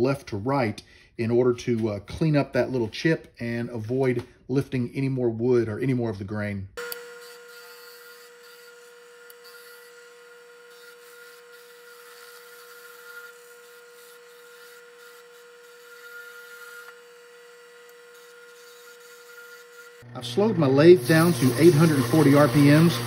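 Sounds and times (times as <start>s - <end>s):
chisel cutting hiss: 6.8s - 20.0s, 20.9s - 23.0s
lathe motor high hum: 6.8s - 23.0s.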